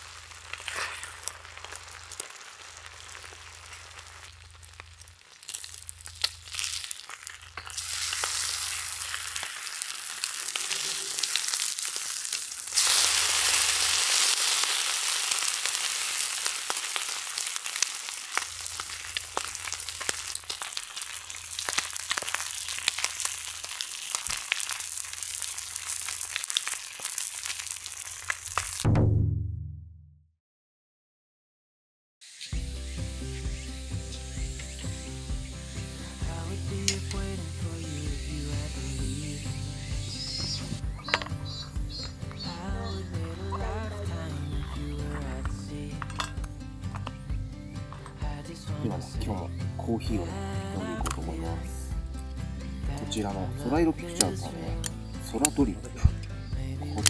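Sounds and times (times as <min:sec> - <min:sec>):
food sizzling in a pan: 0:00.0 - 0:28.8, 0:32.2 - 0:47.2
crackles and pops: 0:00.0 - 0:28.9, 0:34.6 - 0:48.2, 0:54.1 - 0:57.0.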